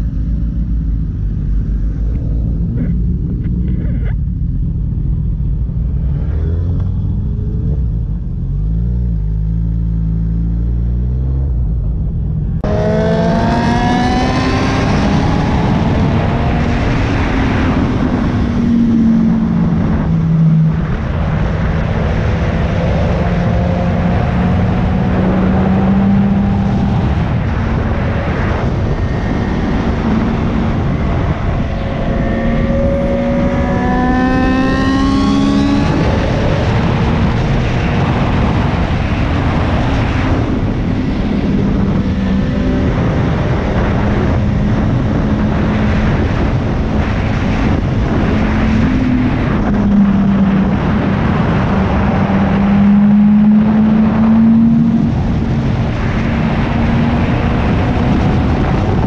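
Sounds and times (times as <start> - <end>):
wind rush: 0.0 - 59.0
motorcycle engine revving: 12.5 - 59.0.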